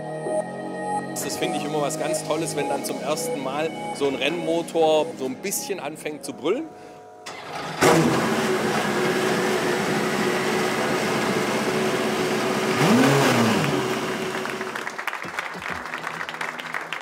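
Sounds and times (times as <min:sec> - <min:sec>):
race car engine revving: 0:07.3 - 0:14.9.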